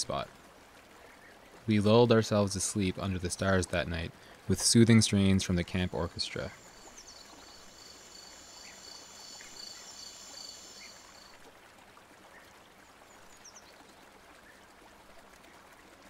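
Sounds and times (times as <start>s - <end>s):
soft even hiss: 1.0s - 11.5s
night insects chirping: 6.5s - 11.4s.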